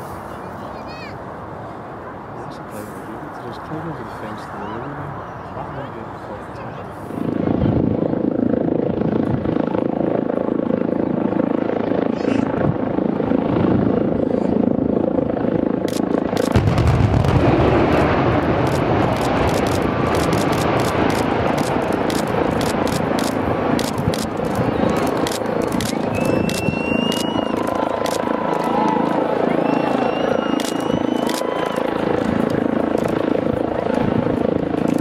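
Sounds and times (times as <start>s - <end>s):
deep demolition rumble: 16.5s - 27.0s
short rising whistle: 26.1s - 27.9s, 29.6s - 31.9s.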